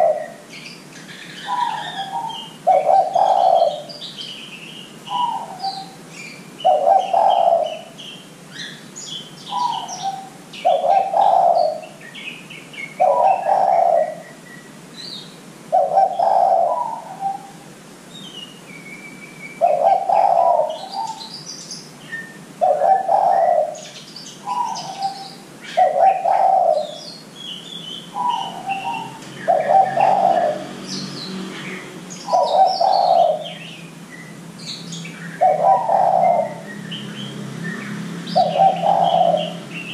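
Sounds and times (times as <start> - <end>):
dove cooing: 0.0 - 0.6, 1.2 - 4.1, 5.1 - 6.0, 6.6 - 8.0, 9.5 - 12.0, 13.0 - 14.4, 15.7 - 17.7, 19.6 - 21.3, 22.6 - 27.0, 28.1 - 30.8, 31.6 - 33.8, 35.4 - 36.7, 38.3 - 39.9
small birds chirping: 0.0 - 39.9.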